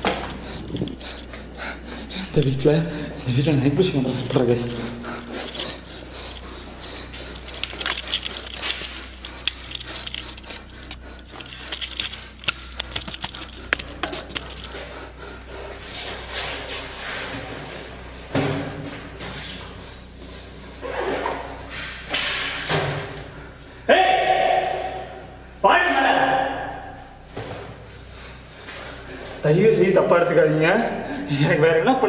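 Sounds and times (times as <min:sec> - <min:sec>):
backpack and camera gear rustling: 0:00.0 - 0:01.6, 0:05.2 - 0:14.9.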